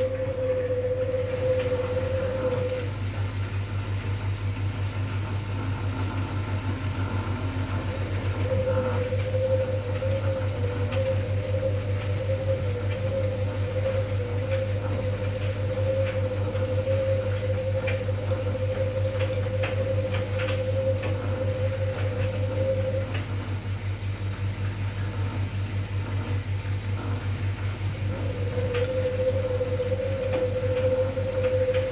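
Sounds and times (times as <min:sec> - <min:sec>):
washing machine motor hum and whine: 0:00.0 - 0:31.9
water sloshing in washing machine: 0:00.0 - 0:31.9.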